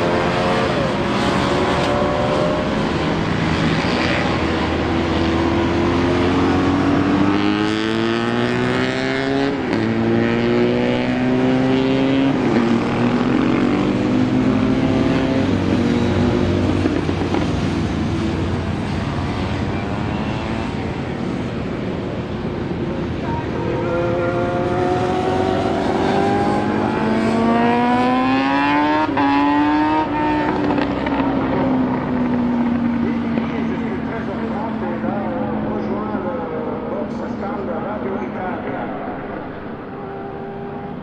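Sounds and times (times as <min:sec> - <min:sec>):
motorcycle engines running: 0:00.0 - 0:41.0.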